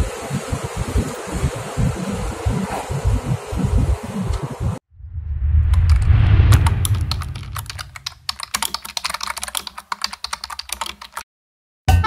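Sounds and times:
low rumble: 0:03.0 - 0:08.6
rapid keyboard typing clicks: 0:05.8 - 0:11.2.

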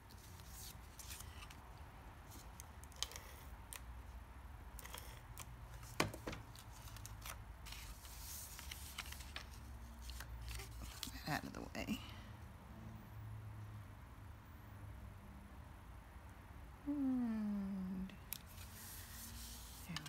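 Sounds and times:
paper rustling: 0:00.1 - 0:01.6, 0:05.8 - 0:11.3.

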